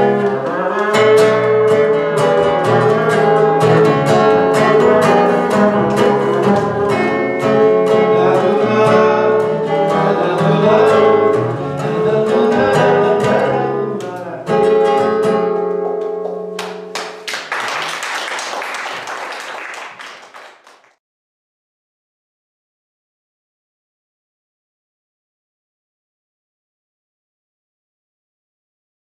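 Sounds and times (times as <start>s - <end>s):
acoustic guitar playing: 0.0s - 17.2s
applause: 16.6s - 21.0s.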